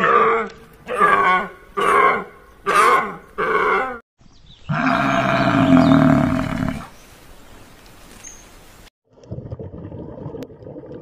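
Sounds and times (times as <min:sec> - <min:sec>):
water buffalo bellowing: 0:00.0 - 0:04.0.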